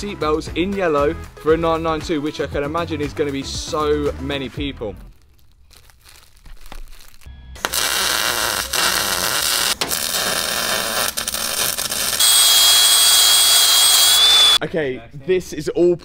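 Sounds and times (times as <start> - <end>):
faint crinkling: 5.0 - 10.4
steady high whine: 7.6 - 14.6
welder arc crackling hiss: 7.6 - 14.6.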